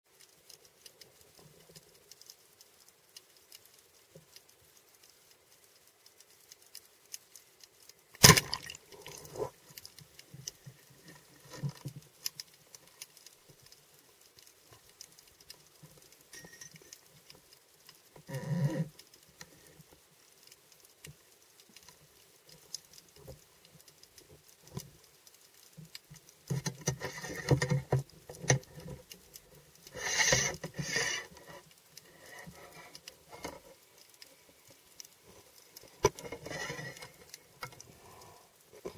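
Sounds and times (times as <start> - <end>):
underwater crackling: 0.2 - 38.9
speargun firing crack: 8.2 - 8.8.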